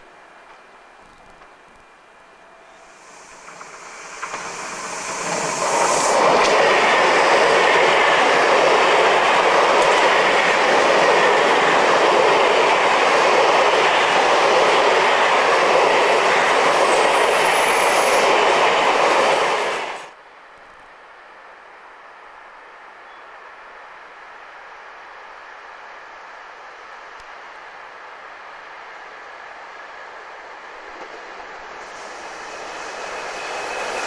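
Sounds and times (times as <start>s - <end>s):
passenger train passing: 0.0s - 20.2s, 23.4s - 34.0s
high squeal of train wheels: 2.4s - 8.5s, 15.4s - 20.1s, 31.0s - 34.0s.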